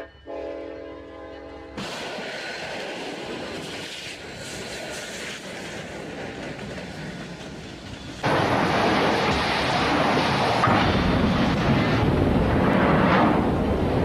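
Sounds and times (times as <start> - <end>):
freight train rumbling past: 0.0 - 14.0
loud rough rushing noise: 8.2 - 14.0.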